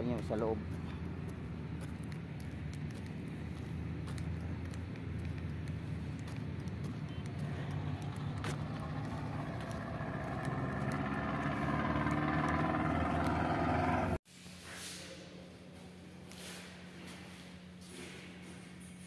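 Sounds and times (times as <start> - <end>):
steady engine hum: 0.0 - 14.2.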